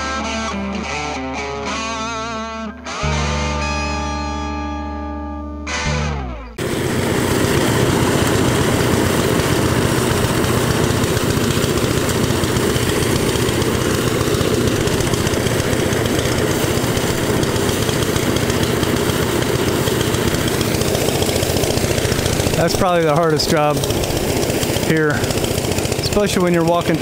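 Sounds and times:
engine running steadily: 0:05.7 - 0:27.0.

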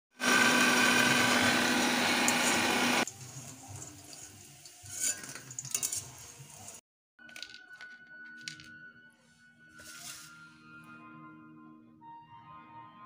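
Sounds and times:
hot oil sizzling: 0:00.2 - 0:06.8
metal tongs clinking: 0:04.8 - 0:06.2.

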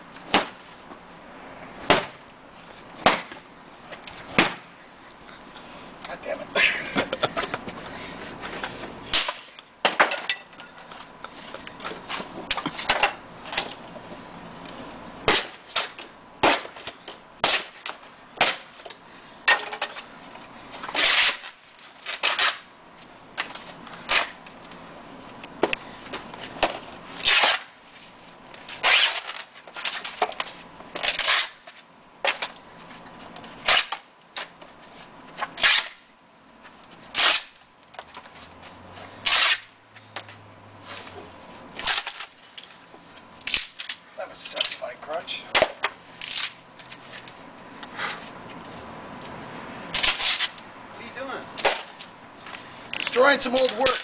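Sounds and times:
splintering wood cracks and bangs: 0:41.8 - 0:42.7.

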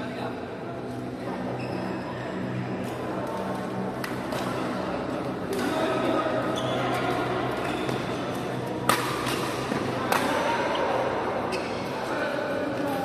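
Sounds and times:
rackets hitting shuttlecock: 0:08.8 - 0:10.4.

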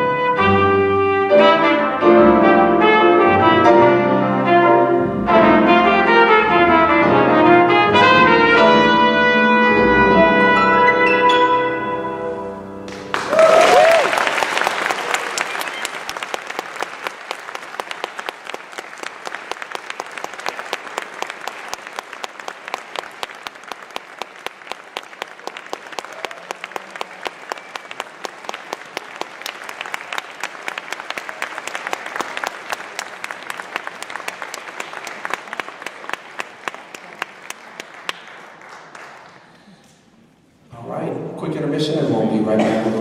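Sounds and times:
audience applauding: 0:12.9 - 0:40.0.

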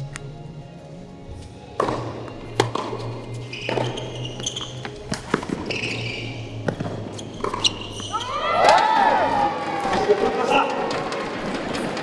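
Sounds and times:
ball bouncing: 0:01.8 - 0:06.0, 0:06.6 - 0:08.3
rackets striking tennis ball: 0:01.8 - 0:06.0, 0:06.6 - 0:08.9
shoes squeaking on court: 0:01.8 - 0:08.4.

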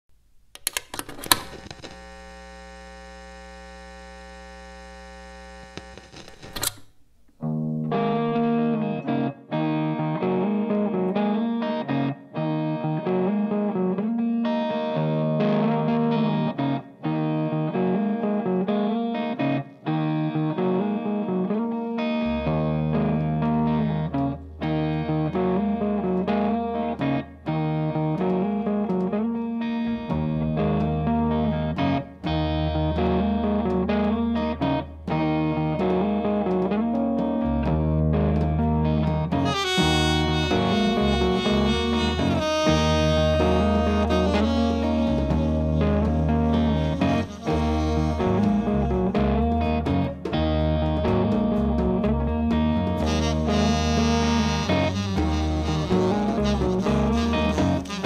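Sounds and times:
amplifier mains hum: 0:00.1 - 0:08.3
clicks: 0:00.4 - 0:02.0, 0:05.7 - 0:07.6
distorted electric guitar riff: 0:00.9 - 0:06.8, 0:07.4 - 0:58.0.

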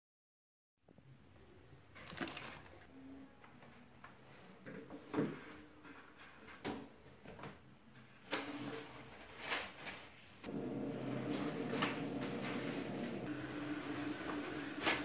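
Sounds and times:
toilet paper rustling: 0:02.0 - 0:02.9, 0:08.0 - 0:15.0
steady hum: 0:10.5 - 0:15.0.

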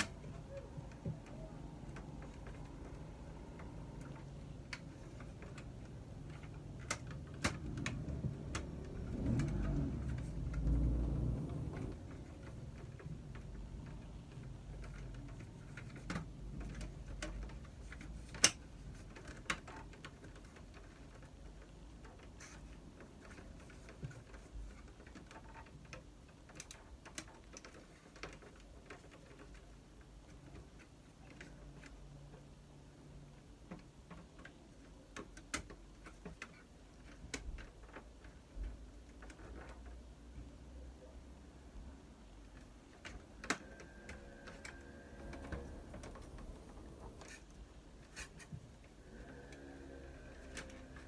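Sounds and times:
low rumbling handling noise: 0:00.0 - 0:19.2.

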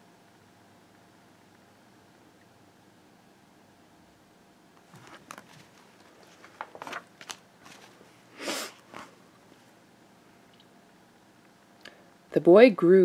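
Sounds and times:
paper rustling: 0:04.8 - 0:09.2.

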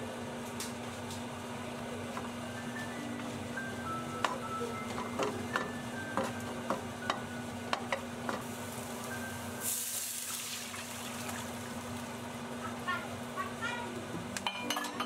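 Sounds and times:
spatula clacking against pan: 0:04.2 - 0:08.5
mushrooms sizzling in pan: 0:05.7 - 0:12.9
water hissing in hot pan: 0:08.4 - 0:12.2.

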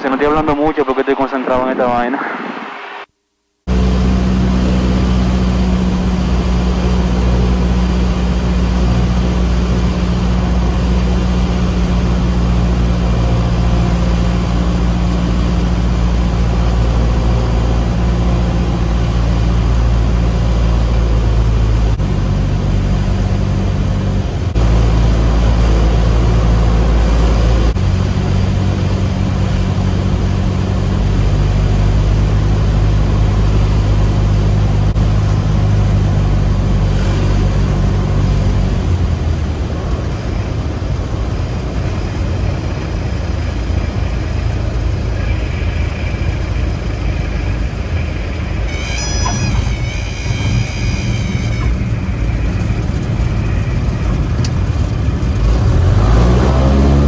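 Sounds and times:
light aircraft engine drone: 0:00.0 - 0:02.6, 0:03.7 - 0:57.0.

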